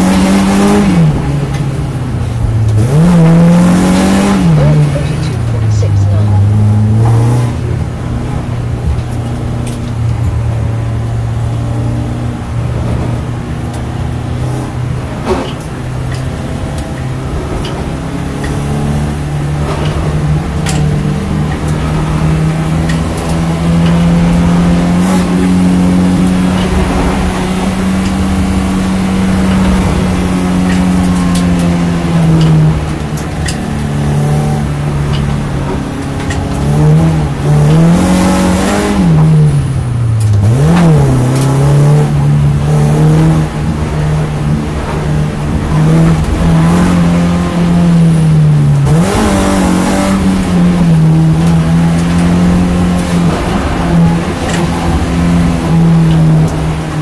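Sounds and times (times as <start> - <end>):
car engine from inside cabin: 0.0 - 57.0.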